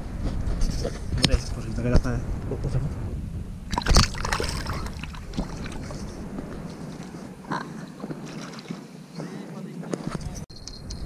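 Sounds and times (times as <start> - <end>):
wind rumble on microphone: 0.0 - 11.0
fish splashing in water: 3.7 - 6.0.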